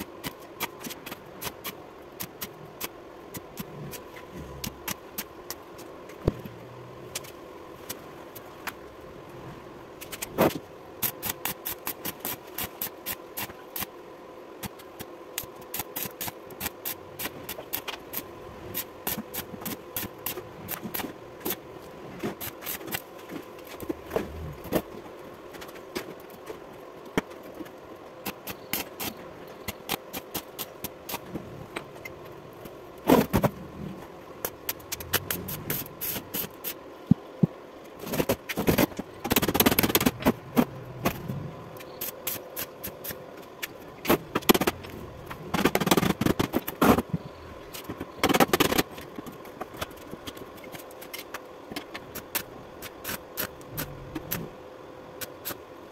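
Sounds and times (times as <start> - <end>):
faint hum: 0.0 - 55.9
welding arc crackling: 10.0 - 13.9, 14.6 - 24.9, 34.4 - 36.8, 38.0 - 54.5.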